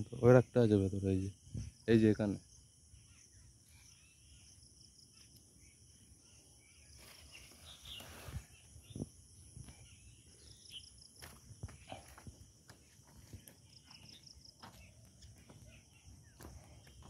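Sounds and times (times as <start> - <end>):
footsteps on loose soil: 11.0 - 17.0.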